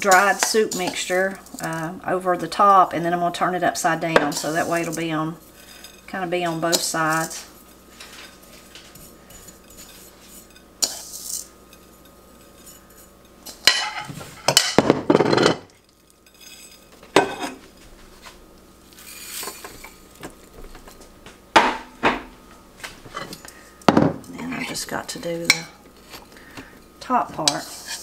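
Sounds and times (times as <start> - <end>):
metal spoon scraping on platter: 4.2 - 14.1, 16.2 - 17.6, 27.4 - 28.0
dishes clattering: 13.5 - 15.7, 17.1 - 17.6, 23.1 - 24.2.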